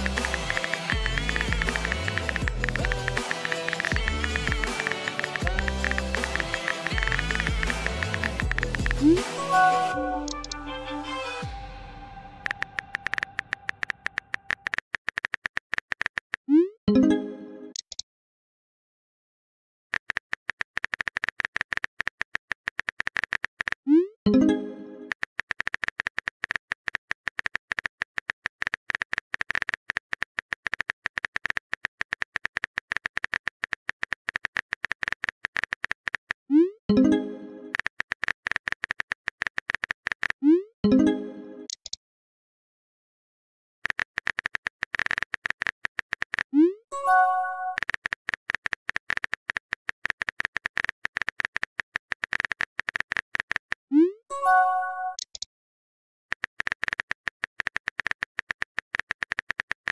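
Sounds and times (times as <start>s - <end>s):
keyboard clicks: 0.0s - 10.6s, 12.5s - 16.7s, 19.9s - 24.0s, 25.1s - 36.4s, 37.7s - 40.5s, 43.8s - 46.7s, 47.7s - 53.8s, 56.3s - 59.9s
message chime tone: 9.3s - 10.6s, 47.0s - 47.8s.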